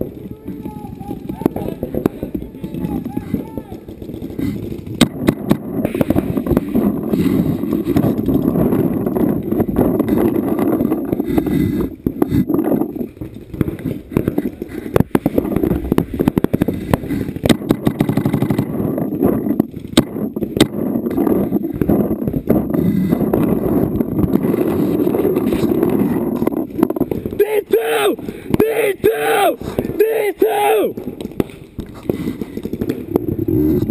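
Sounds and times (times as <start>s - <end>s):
paintball shots popping: 0.0s - 27.4s, 30.9s - 33.9s.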